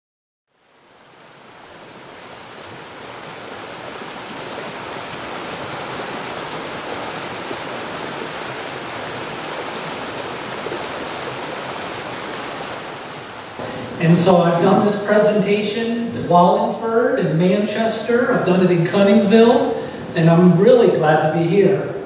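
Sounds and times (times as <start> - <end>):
steady rushing noise: 12.2 - 16.7.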